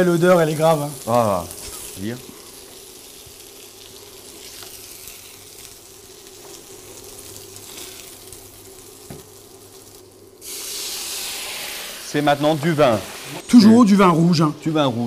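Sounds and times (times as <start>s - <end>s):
meat sizzling in a pan: 0.0s - 13.6s.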